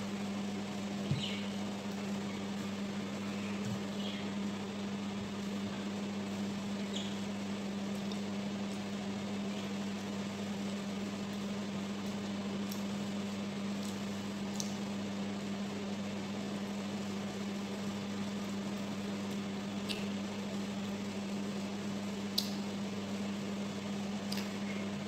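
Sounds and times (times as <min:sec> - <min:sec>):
appliance electrical hum: 0:00.0 - 0:25.0
chewing mouth clicks: 0:19.8 - 0:20.1.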